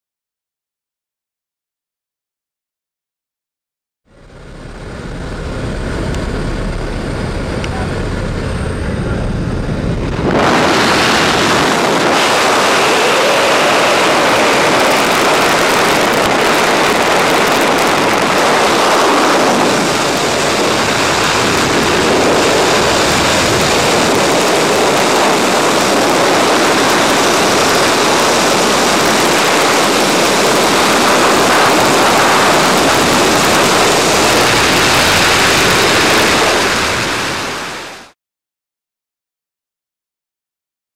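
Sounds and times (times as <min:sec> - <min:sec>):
wind buffeting microphone: 0:04.3 - 0:37.8.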